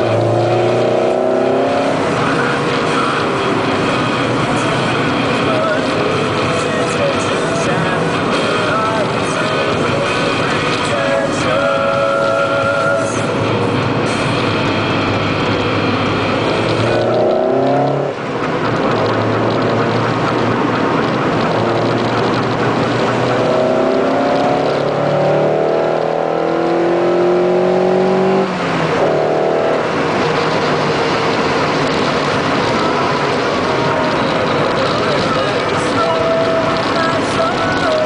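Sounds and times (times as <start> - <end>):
car engine accelerating: 0.0 - 38.0
tyres hissing on wet road: 14.0 - 14.9.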